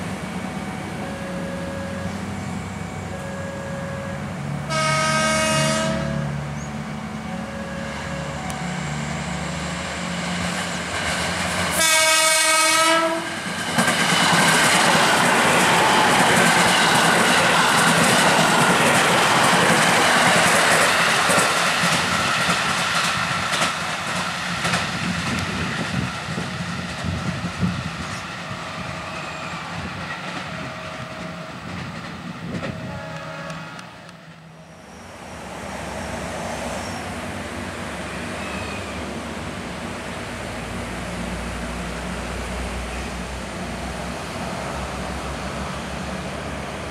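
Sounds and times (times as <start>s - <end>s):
short horn tones: 3.1s - 6.3s, 32.8s - 34.0s
train wheels clicking over rail joints: 13.4s - 34.4s.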